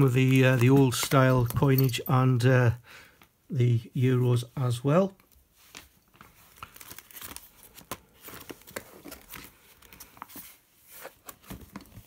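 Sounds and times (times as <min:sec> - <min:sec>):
plastic album pages crinkling: 0:00.0 - 0:02.0, 0:05.2 - 0:12.0.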